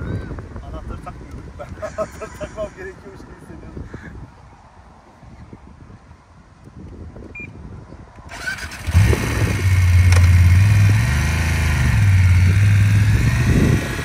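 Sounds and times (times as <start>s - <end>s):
motorcycle engine running: 8.4s - 14.0s.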